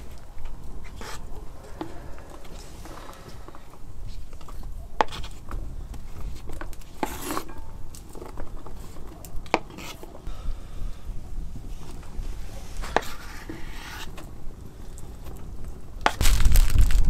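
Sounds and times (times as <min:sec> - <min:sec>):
knife scraping cutting board: 0:07.0 - 0:07.5, 0:09.6 - 0:10.1, 0:12.6 - 0:14.2.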